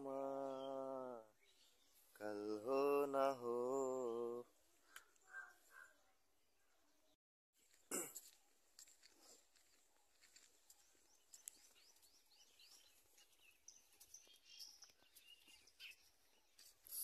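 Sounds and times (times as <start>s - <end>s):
birds chirping and whistling: 11.5s - 17.0s.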